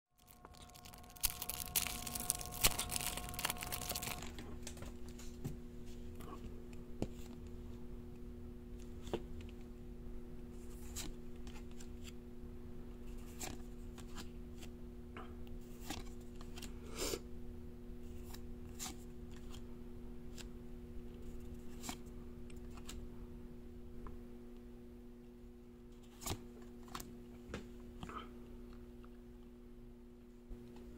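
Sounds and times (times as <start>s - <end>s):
foil pack tearing: 0.2s - 4.3s
cards flipping: 0.4s - 4.3s.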